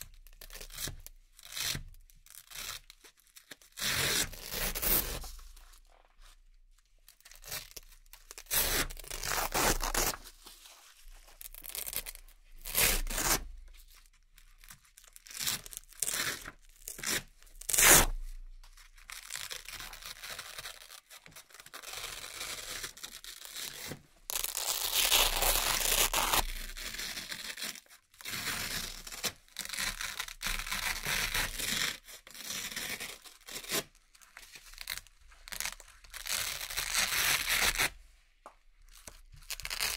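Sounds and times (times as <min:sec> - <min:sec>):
hook-and-loop patches ripping: 0:07.2 - 0:13.5, 0:14.5 - 0:38.0, 0:38.8 - 0:39.9.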